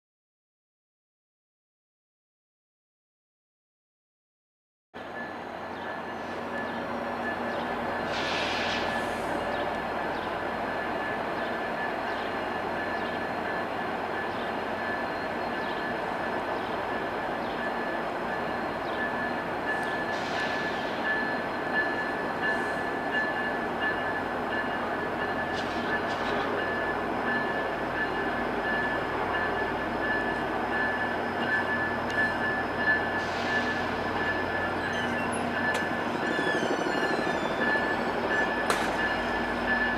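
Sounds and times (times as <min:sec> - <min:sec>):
diesel train rumble: 0:05.0 - 0:39.9
brief higher squeaks: 0:34.9 - 0:38.1.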